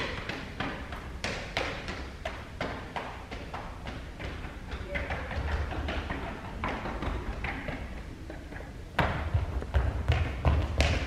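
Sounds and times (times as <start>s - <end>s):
footsteps on concrete stairs: 0.0s - 11.0s
running footsteps on hard floor: 0.0s - 11.0s.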